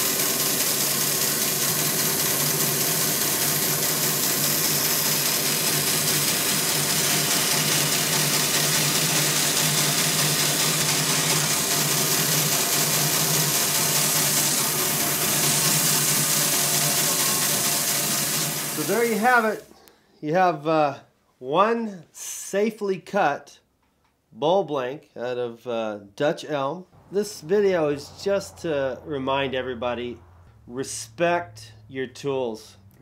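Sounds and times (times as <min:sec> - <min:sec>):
bandsaw cutting wood: 0:00.0 - 0:19.7.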